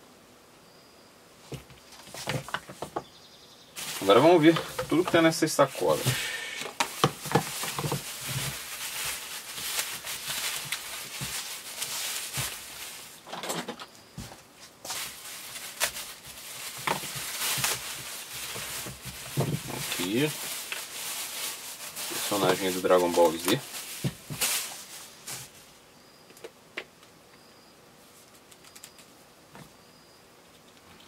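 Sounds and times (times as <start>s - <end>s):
plastic bags rustling: 1.5s - 3.0s, 3.8s - 25.8s.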